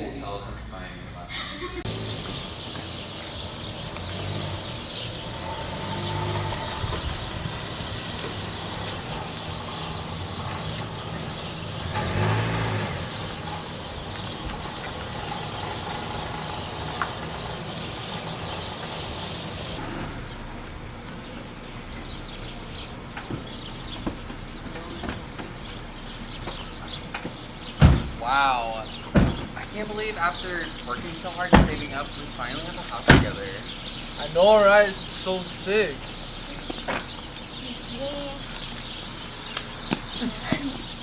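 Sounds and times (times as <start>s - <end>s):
outdoor background noise: 0.0s - 41.0s
vehicle engine passing by: 1.8s - 28.9s.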